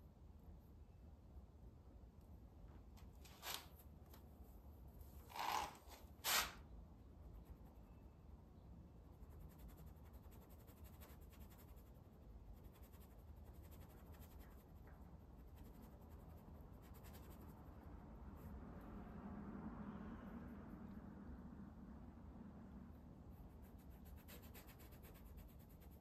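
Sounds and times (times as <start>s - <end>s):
low room hum: 0.0s - 26.0s
brush scratching on canvas: 3.2s - 3.9s, 9.1s - 18.5s, 23.3s - 26.0s.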